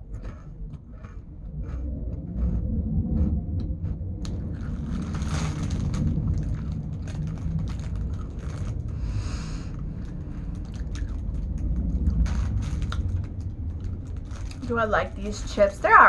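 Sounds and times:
chips being chewed: 0.0 - 15.8
low steady rumble: 0.0 - 16.0
rustling: 4.2 - 16.0.

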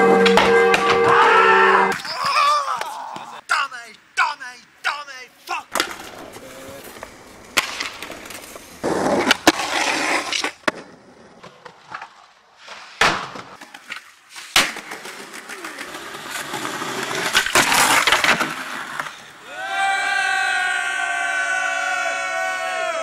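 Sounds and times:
skateboard wheels rolling on concrete: 5.3 - 23.0
skateboard popping and landing clacks: 5.7 - 12.3, 13.0 - 19.1.

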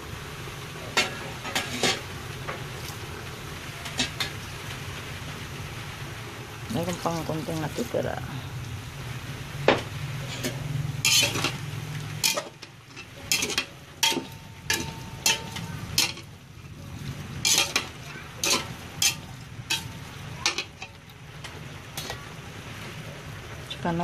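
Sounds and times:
light sizzle of frying: 0.0 - 24.0
metal spatula scraping a pot: 1.0 - 2.1, 10.2 - 16.3, 17.4 - 21.0.

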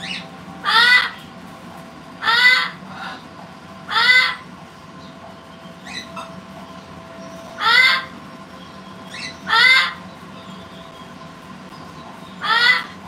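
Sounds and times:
parrot calling: 0.0 - 1.3, 2.2 - 4.5, 5.8 - 6.4, 7.2 - 8.2, 9.0 - 10.9, 12.2 - 13.0.

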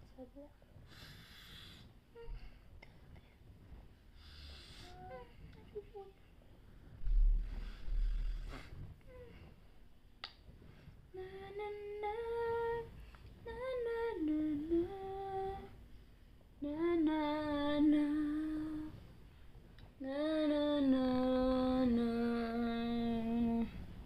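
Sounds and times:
woman humming a lullaby: 4.8 - 6.2, 9.0 - 9.4, 13.5 - 15.7, 20.0 - 23.8.

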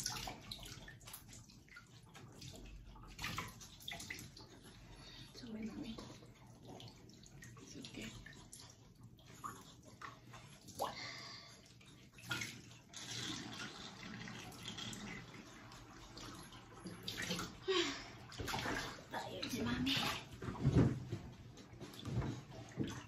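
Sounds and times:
water sounds in bathtub: 0.0 - 23.0
water splashes: 0.0 - 23.0.

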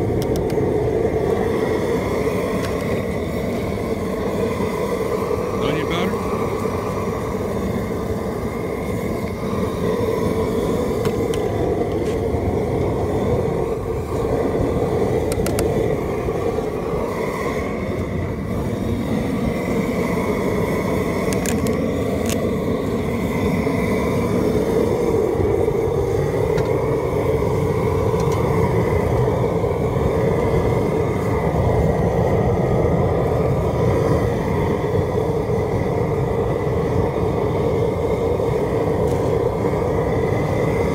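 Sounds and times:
propane burner roaring: 0.0 - 40.9.

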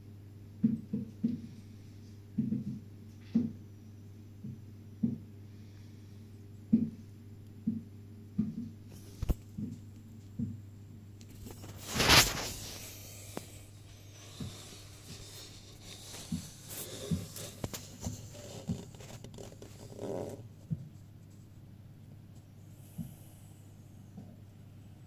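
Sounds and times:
camera handling rustle: 15.1 - 20.2.

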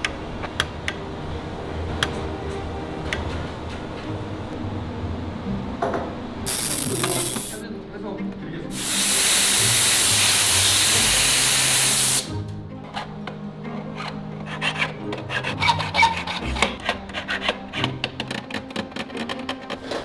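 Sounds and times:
background music: 0.0 - 20.0
steam cleaner hissing: 6.5 - 7.6, 8.8 - 12.3.

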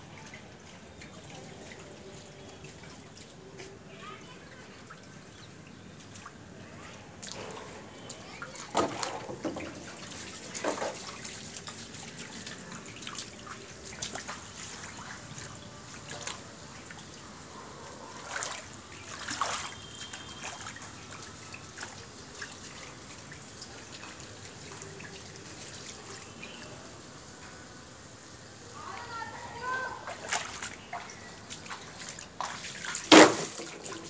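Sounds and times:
water splashes: 0.0 - 27.1, 28.5 - 34.0
water trickling on tiled floor: 0.0 - 34.0.

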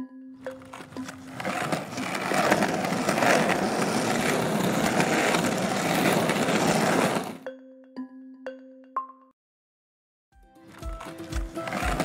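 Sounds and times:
skateboard wheels rolling: 0.5 - 7.4, 10.7 - 12.0.

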